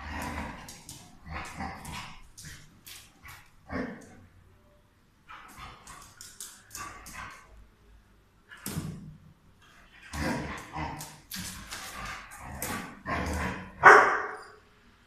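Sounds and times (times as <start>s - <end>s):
dogs barking and yipping: 13.1s - 14.6s.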